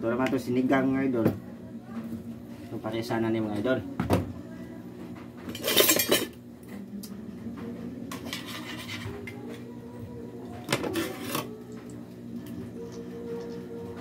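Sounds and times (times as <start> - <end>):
metal utensils clattering: 5.5 - 6.4
tongs scraping in a wok: 8.1 - 9.3.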